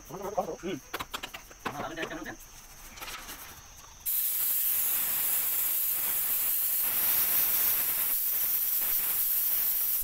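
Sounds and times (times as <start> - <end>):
spray gun hissing: 4.0 - 10.0.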